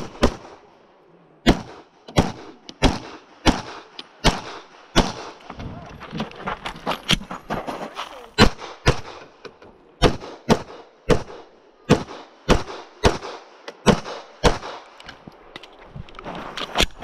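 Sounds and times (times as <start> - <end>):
pistol shots: 0.0 - 0.7, 1.4 - 5.4, 8.4 - 9.4, 10.0 - 15.0.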